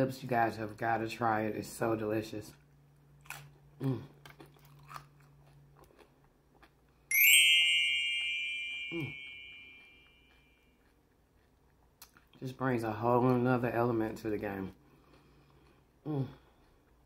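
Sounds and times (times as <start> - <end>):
chewing and crunching taco: 1.6 - 7.1, 9.3 - 17.0
bright chime sound effect: 7.1 - 10.3.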